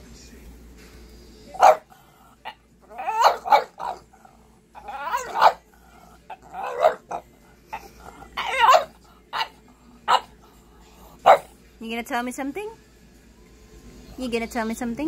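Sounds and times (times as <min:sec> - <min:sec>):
dog making vocal sounds: 0:01.6 - 0:10.6.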